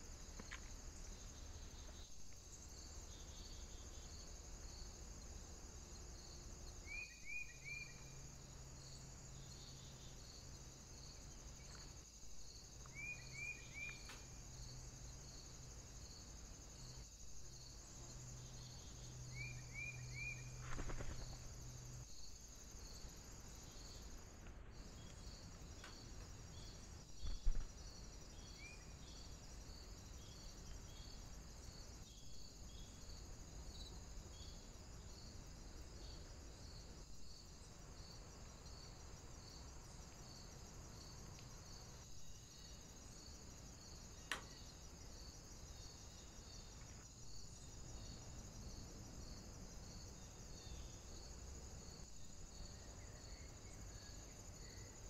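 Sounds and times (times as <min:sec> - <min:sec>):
constant high hiss: 0:00.0 - 0:55.0
insects chirping: 0:00.0 - 0:55.0
small bird chirps: 0:12.9 - 0:14.2.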